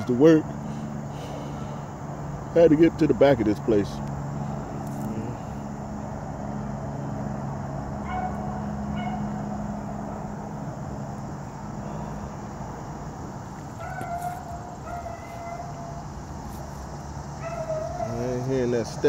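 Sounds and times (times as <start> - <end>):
distant hounds calling: 0.0 - 3.1, 7.9 - 12.9, 13.5 - 19.0
steady low hum: 0.0 - 19.0.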